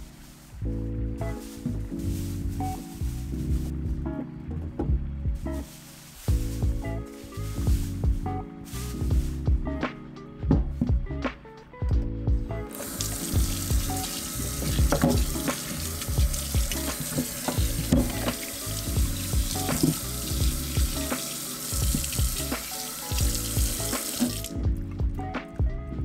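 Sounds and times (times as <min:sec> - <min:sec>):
background music: 0:00.0 - 0:26.0
tap running into metal sink: 0:12.8 - 0:24.5.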